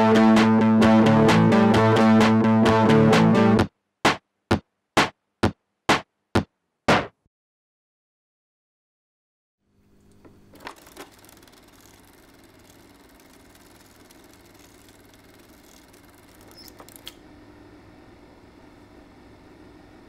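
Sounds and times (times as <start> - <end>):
mechanical whir with hum: 9.7 - 20.0
clicks: 10.0 - 17.2.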